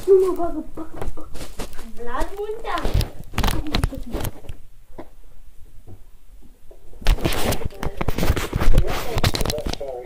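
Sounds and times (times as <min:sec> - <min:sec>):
phone rustling and scuffling: 0:01.4 - 0:04.5, 0:07.0 - 0:10.0.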